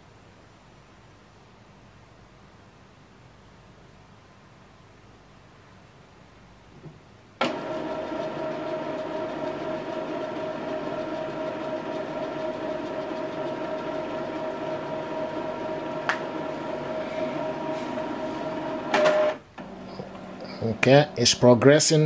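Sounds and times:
printer click: 0:07.4 - 0:13.8, 0:15.9 - 0:16.6, 0:18.8 - 0:20.2
printer mechanical whir: 0:07.4 - 0:21.6.

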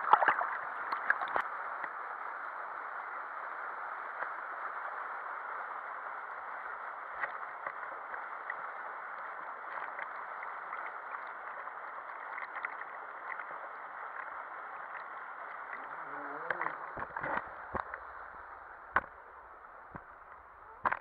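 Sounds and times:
water rushing down a slide tube: 0:00.0 - 0:01.5, 0:06.5 - 0:21.0.

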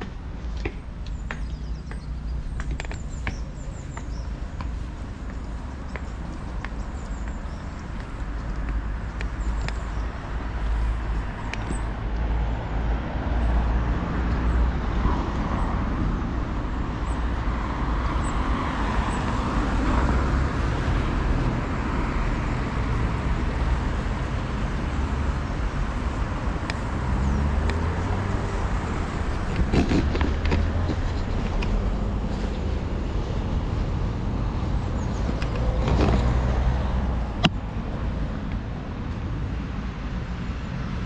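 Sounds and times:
street traffic: 0:00.0 - 0:41.0.

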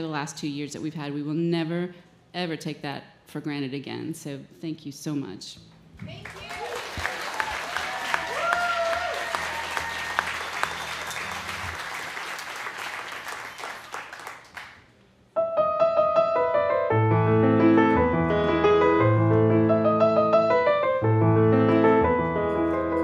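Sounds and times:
audience applause: 0:06.1 - 0:14.8
piano playing: 0:15.4 - 0:23.0.

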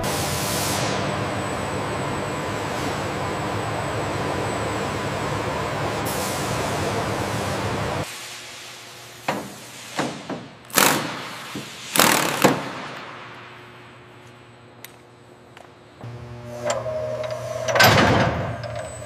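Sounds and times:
low machine hum: 0:00.0 - 0:08.1, 0:13.1 - 0:19.0
machine hum: 0:00.0 - 0:08.1, 0:13.0 - 0:19.0.

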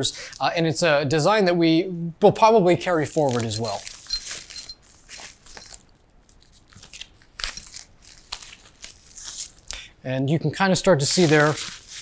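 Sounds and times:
plastic packaging crinkling: 0:03.1 - 0:09.9, 0:11.0 - 0:12.0.

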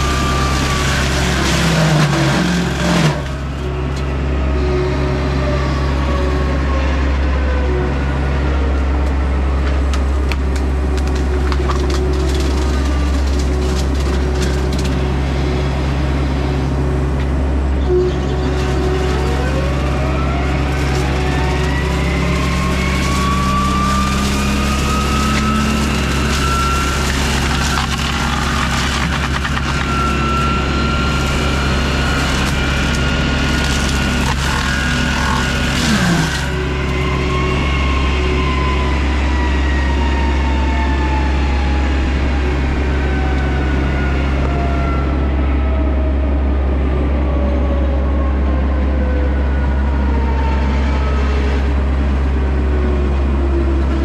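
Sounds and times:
diesel engine running: 0:00.0 - 0:54.0
hydraulic mulcher whine: 0:00.0 - 0:54.0
sharp cracks: 0:20.6 - 0:30.1.

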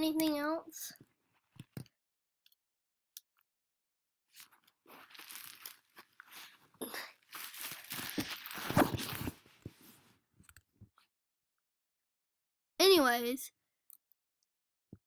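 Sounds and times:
crunching and rustling: 0:04.4 - 0:09.4.

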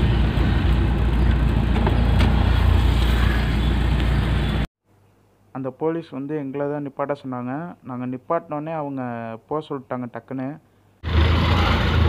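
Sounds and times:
car engine and road rumble: 0:00.0 - 0:04.7, 0:11.0 - 0:12.0.

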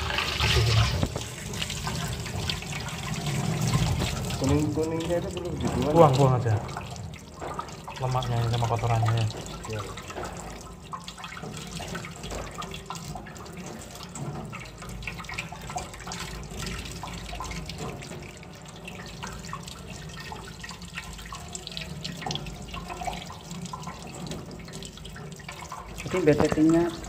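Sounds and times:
tap water running into sink: 0:00.0 - 0:27.0.

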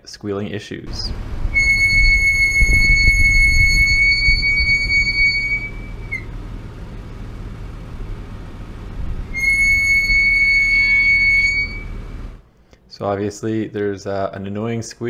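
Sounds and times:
brakes squealing: 0:00.9 - 0:12.4
road and tyre noise: 0:00.9 - 0:12.5.

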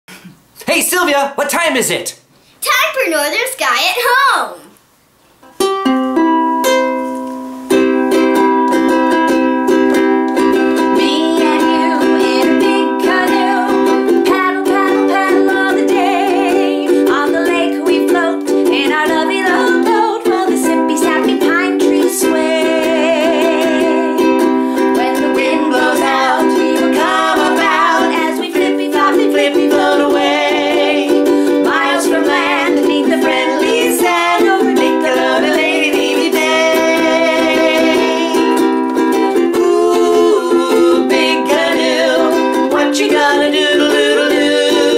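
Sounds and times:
ukulele strumming: 0:05.4 - 0:44.9
person singing: 0:10.6 - 0:44.9.

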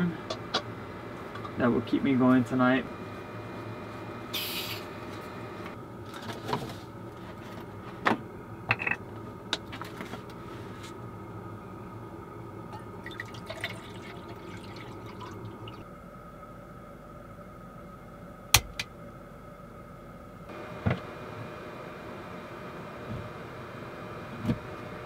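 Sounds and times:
water pouring and gurgling: 0:13.0 - 0:15.8.

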